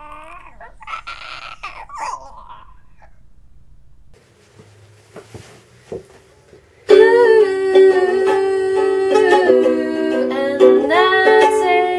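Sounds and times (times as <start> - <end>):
ukulele strumming: 6.9 - 11.9.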